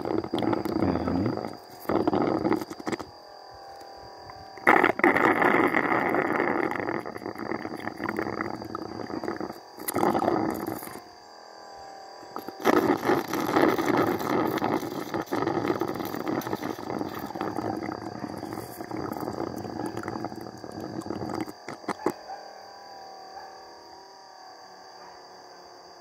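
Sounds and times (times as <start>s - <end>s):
honey sucked through tube: 0.0s - 3.1s, 4.6s - 11.0s, 12.3s - 22.1s.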